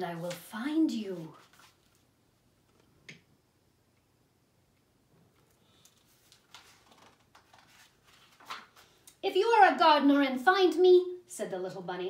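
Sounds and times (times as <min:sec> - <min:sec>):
book pages rustling and turning: 0:00.0 - 0:02.1, 0:05.3 - 0:09.1.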